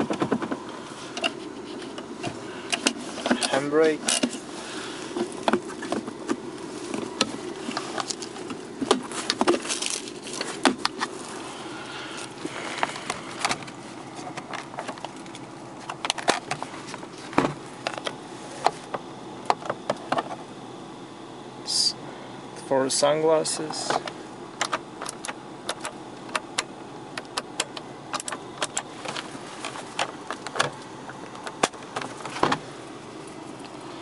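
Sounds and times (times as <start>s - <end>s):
low buzzing hum in car cabin: 0.0s - 34.0s.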